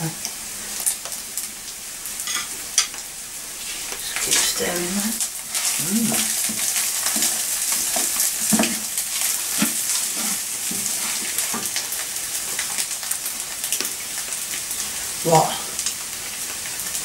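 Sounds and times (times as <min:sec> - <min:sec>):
rice sizzling in a pan: 0:00.0 - 0:17.0
spatula scraping a pan: 0:05.5 - 0:11.7.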